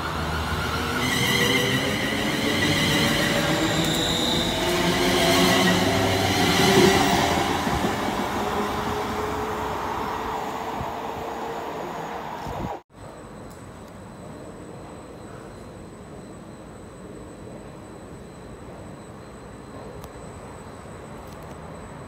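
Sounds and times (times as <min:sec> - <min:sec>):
electric train motor whine: 0:00.0 - 0:12.8
train wheels rumbling: 0:00.0 - 0:12.8.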